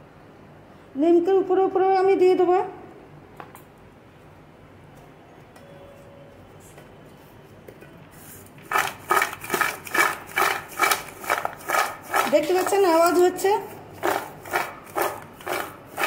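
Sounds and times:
fried snacks rattling in metal bowl: 0:08.6 - 0:16.0.

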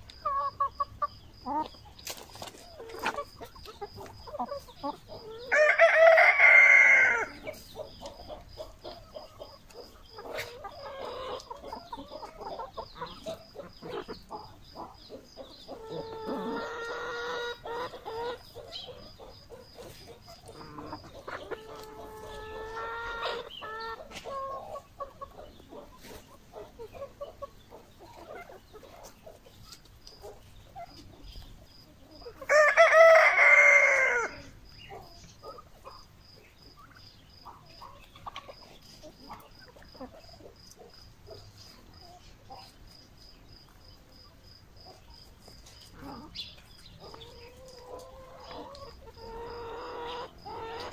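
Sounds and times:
chickens clucking: 0:00.0 - 0:50.9
drawn-out chicken calls: 0:00.0 - 0:50.9
rooster crowing: 0:05.4 - 0:07.4, 0:32.5 - 0:34.5.

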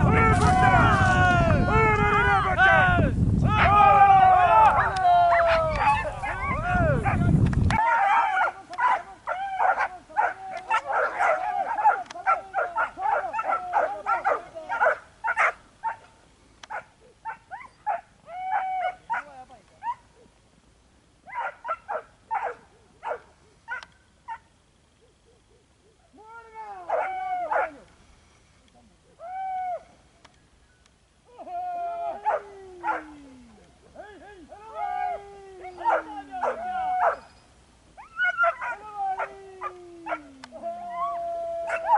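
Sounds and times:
dogs yelping and barking: 0:04.7 - 0:16.1, 0:16.7 - 0:20.3, 0:21.3 - 0:24.4, 0:26.9 - 0:27.8, 0:32.2 - 0:33.2, 0:34.7 - 0:37.4, 0:38.0 - 0:40.3, 0:40.9 - 0:41.9.

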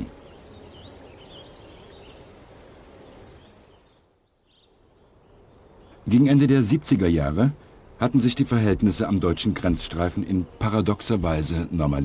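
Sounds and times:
bird chirps: 0:00.0 - 0:06.5.

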